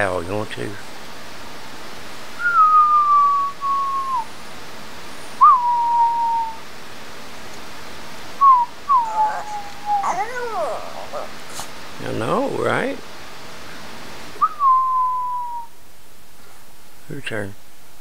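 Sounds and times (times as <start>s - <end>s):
dog howling: 8.4s - 11.7s
man howling: 8.5s - 11.5s.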